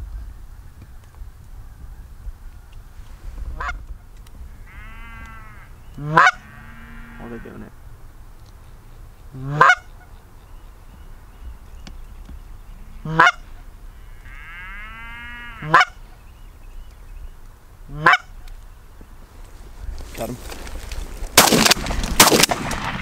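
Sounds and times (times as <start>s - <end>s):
geese honking: 3.6s - 3.8s, 4.5s - 7.7s, 9.3s - 10.2s, 12.7s - 16.2s, 17.9s - 18.5s.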